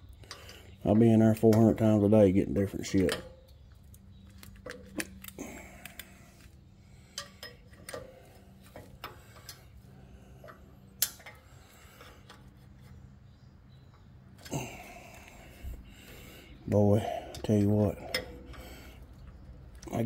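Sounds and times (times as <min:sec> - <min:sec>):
faint steady hum: 0:00.0 - 0:20.0
metallic clicks and taps: 0:10.4 - 0:11.4.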